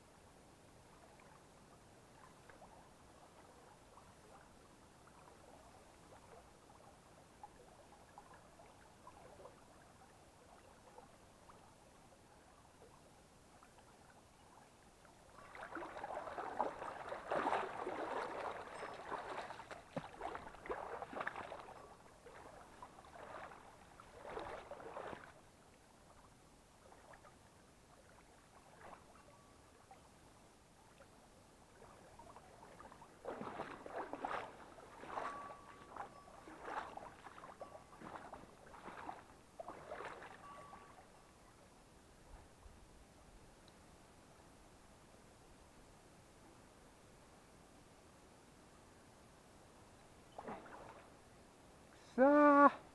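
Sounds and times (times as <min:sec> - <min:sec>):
stream running: 0:00.0 - 0:52.9
splashing of wading through water: 0:15.2 - 0:25.5, 0:26.8 - 0:29.2, 0:31.7 - 0:41.2, 0:50.3 - 0:51.2.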